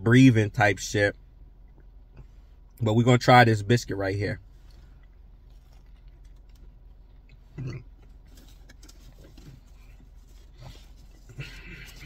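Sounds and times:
person chewing biscuit: 4.6s - 12.0s.

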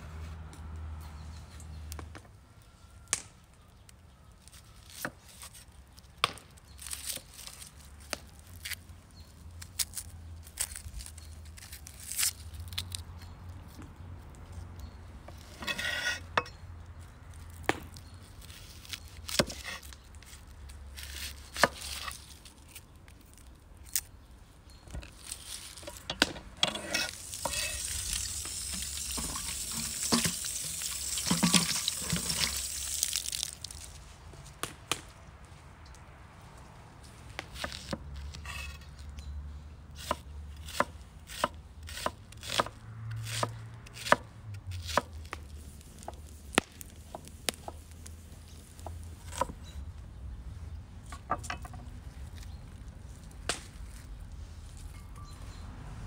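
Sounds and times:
water pouring into colander: 27.2s - 33.4s.

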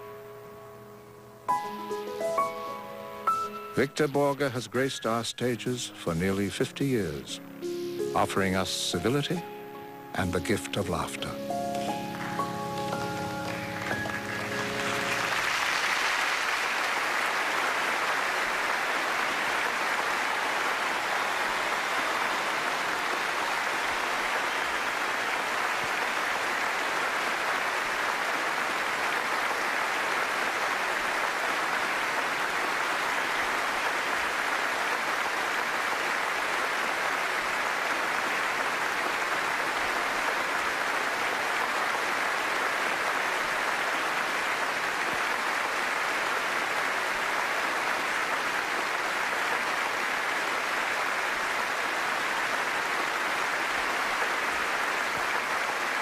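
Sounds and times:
music: 0.0s - 16.0s
audience applauding: 5.5s - 56.0s.

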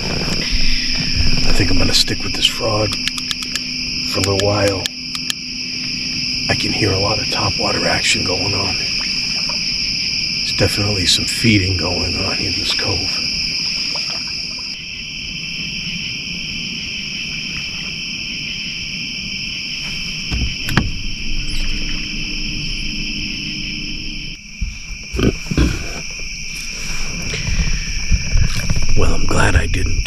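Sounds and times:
low rumble: 0.0s - 4.2s, 20.0s - 30.0s
insects trilling: 0.0s - 30.0s.

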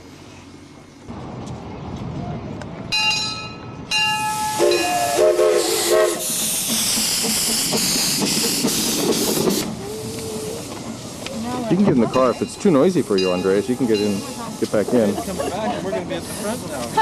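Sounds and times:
steam whistle blasts: 4.2s - 6.4s
loud hiss of escaping steam: 4.2s - 17.0s.

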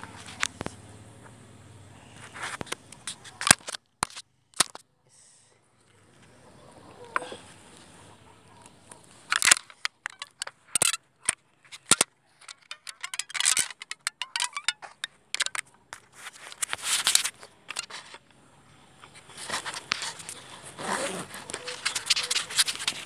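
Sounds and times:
phone handling noise: 9.1s - 18.3s, 19.0s - 23.0s.

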